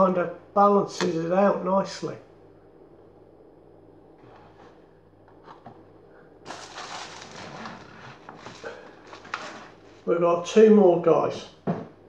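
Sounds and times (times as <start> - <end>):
wrapping rustling and crinkling: 6.5 - 10.2.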